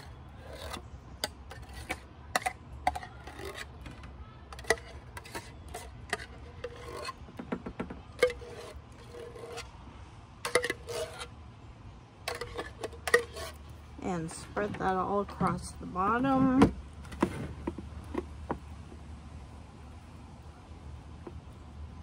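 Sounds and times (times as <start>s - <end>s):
clicks and scrapes from a tin can: 0.0s - 9.7s, 10.4s - 11.3s, 12.3s - 13.8s.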